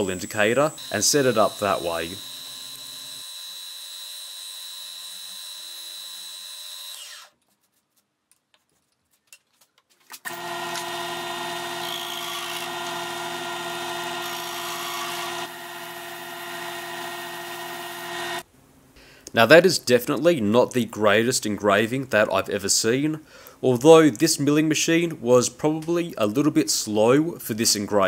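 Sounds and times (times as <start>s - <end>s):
milling machine spindle whine: 0.0s - 3.7s
lathe running: 10.3s - 18.4s.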